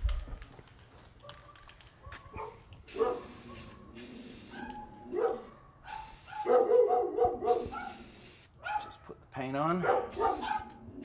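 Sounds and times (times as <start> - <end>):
dog barking: 1.2 - 3.8, 4.5 - 8.0, 8.6 - 9.2, 9.8 - 10.7
aerosol spray can hissing: 2.9 - 4.7, 5.9 - 6.5, 7.5 - 8.5, 10.1 - 10.6.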